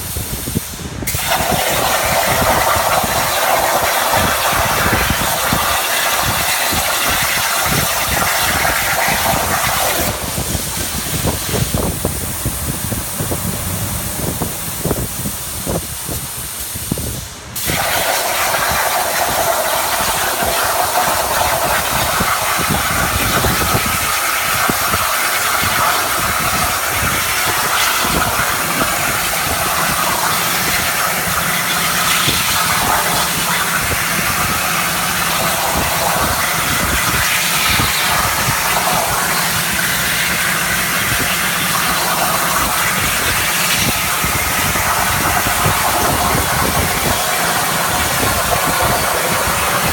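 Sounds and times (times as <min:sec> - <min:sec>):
plasma torch hissing: 0:00.0 - 0:49.9.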